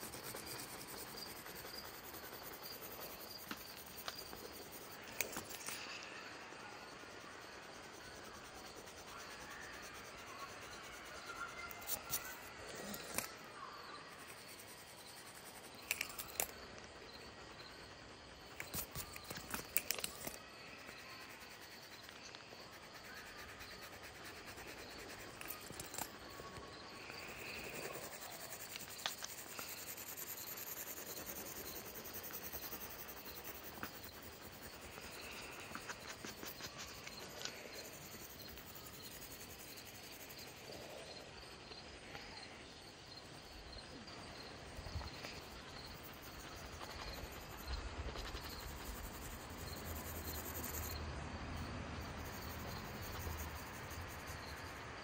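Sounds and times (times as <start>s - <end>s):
pencil scratching on paper: 0.0s - 4.6s, 11.4s - 13.3s, 21.0s - 26.4s, 27.0s - 40.2s
faint high rhythmic ticking: 0.0s - 51.0s.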